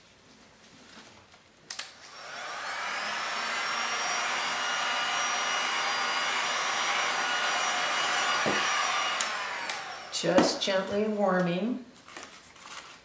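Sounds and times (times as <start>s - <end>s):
heat gun fan blowing: 2.0s - 11.2s
heat gun switch clicks: 8.5s - 9.9s.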